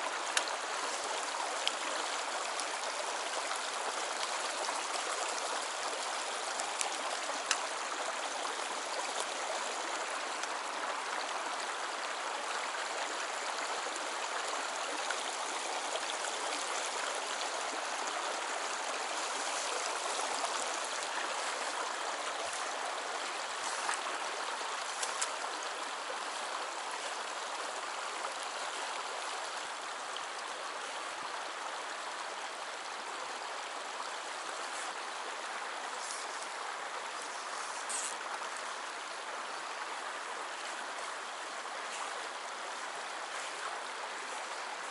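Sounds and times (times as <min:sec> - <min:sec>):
stream babbling over stones: 0:00.0 - 0:44.9
faint ticks: 0:00.3 - 0:00.6, 0:01.6 - 0:01.8, 0:06.5 - 0:07.8, 0:24.8 - 0:25.6.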